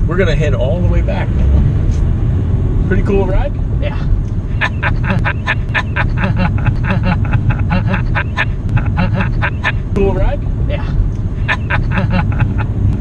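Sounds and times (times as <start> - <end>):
car engine in cabin: 0.0 - 13.0
people laughing: 4.6 - 9.9, 11.4 - 12.8.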